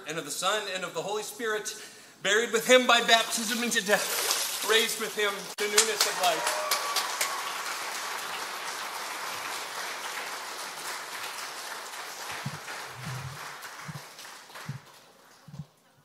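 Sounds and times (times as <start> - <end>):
crowd applauding: 5.6 - 15.6.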